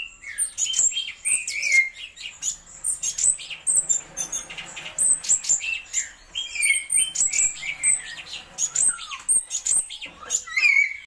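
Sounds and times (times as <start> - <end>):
bird singing chirps and whistles: 0.0 - 11.0.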